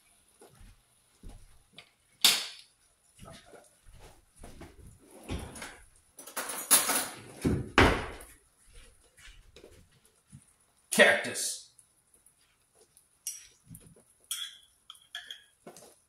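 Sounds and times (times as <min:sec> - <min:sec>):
kitchen knocks and rattles: 0:05.2 - 0:08.3.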